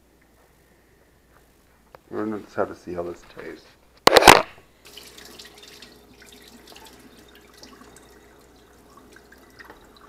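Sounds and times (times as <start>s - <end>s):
faucet running into a bowl: 4.9s - 10.0s
water drips and splashes: 4.9s - 10.0s.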